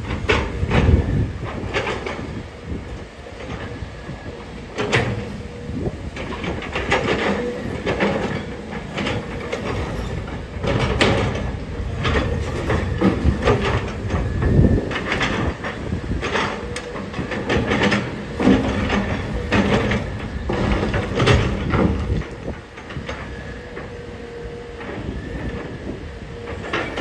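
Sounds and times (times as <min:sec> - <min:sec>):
diesel engine rumble: 0:00.0 - 0:27.0
heavy metal clanks: 0:06.2 - 0:23.2.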